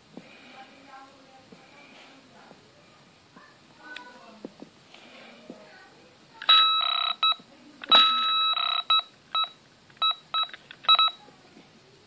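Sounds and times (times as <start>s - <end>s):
short electronic beeps: 6.5s - 11.2s.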